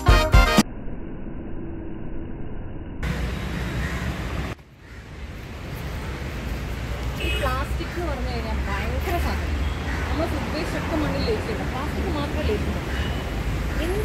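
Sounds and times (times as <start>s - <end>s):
background music: 0.0s - 0.6s
distant road traffic rumble: 3.0s - 14.0s.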